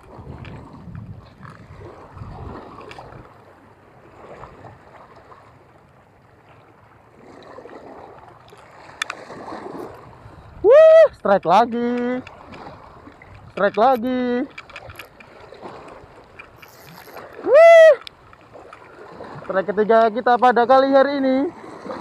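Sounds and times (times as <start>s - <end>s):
wind buffeting microphone: 0.0s - 5.5s, 8.8s - 19.7s
water lapping against rocks: 0.0s - 22.0s.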